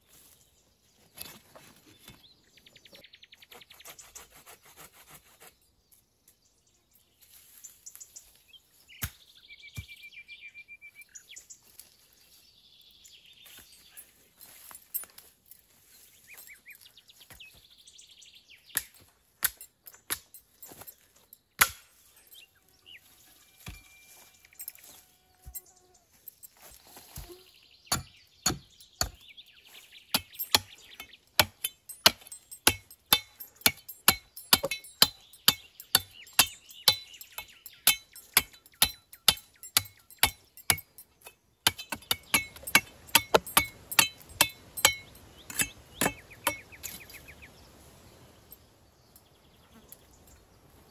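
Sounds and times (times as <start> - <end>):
birds singing: 0.0 - 50.9
wood being chopped: 9.0 - 9.2, 21.6 - 22.0, 27.2 - 29.3, 31.4 - 40.9, 41.6 - 47.0.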